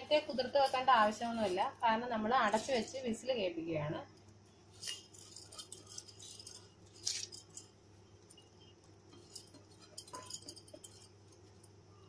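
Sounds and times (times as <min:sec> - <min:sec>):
low steady hum: 0:00.0 - 0:12.0
spoon clinking against metal pot: 0:09.1 - 0:11.7.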